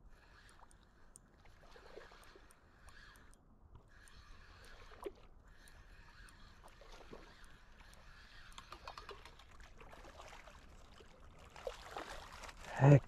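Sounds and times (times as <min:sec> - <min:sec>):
fish splashing in water: 0:08.2 - 0:12.7.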